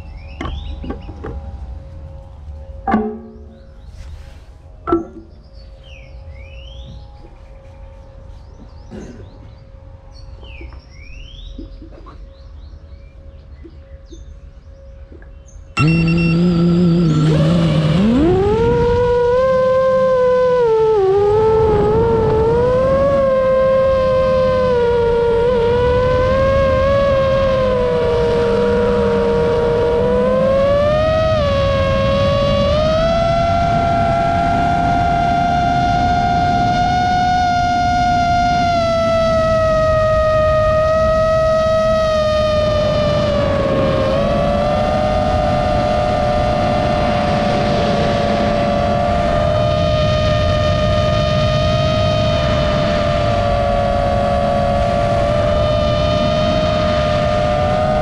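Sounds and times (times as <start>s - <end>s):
wind rumbling on microphone: 0.0s - 58.0s
quadcopter motors whining: 15.8s - 58.0s.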